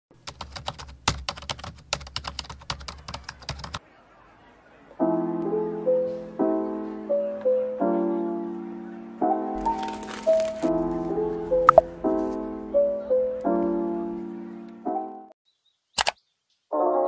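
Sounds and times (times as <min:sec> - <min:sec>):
soft piano music: 0:05.0 - 0:15.4, 0:16.7 - 0:17.0
keyboard typing clicks: 0:16.0 - 0:16.2.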